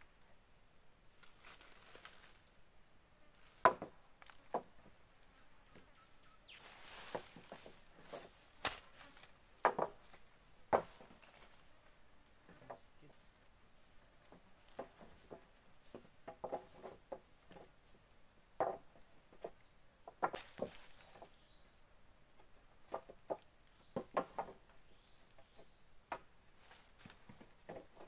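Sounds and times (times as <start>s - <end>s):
leaves rustling: 1.0s - 28.0s
dry twigs cracking: 1.2s - 2.6s, 6.6s - 10.2s.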